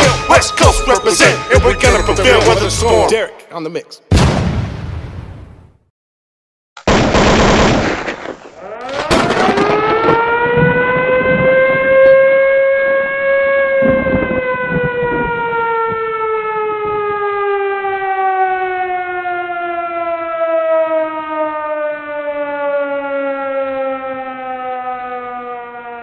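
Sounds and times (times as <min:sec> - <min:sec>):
civil defense siren winding down: 0:08.6 - 0:26.0.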